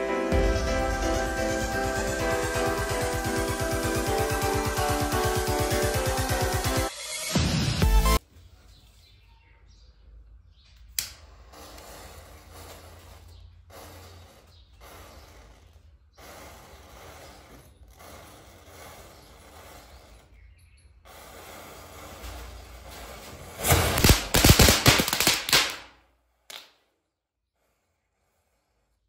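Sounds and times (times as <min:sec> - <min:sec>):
sharp click: 0:10.9 - 0:11.2.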